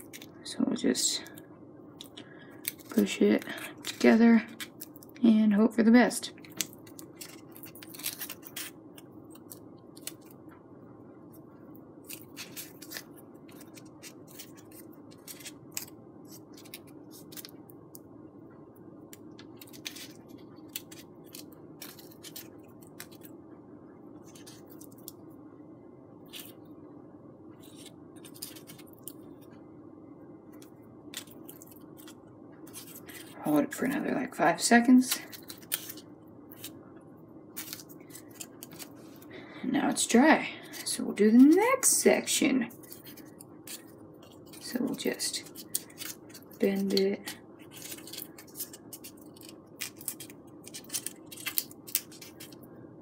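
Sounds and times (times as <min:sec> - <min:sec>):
faint steady hum: 0:00.0 - 0:53.0
foamboard pieces clicking and crackling: 0:06.4 - 0:10.4, 0:12.0 - 0:17.6, 0:19.1 - 0:23.3, 0:27.6 - 0:29.2, 0:35.0 - 0:36.8, 0:37.6 - 0:38.9, 0:42.8 - 0:52.6.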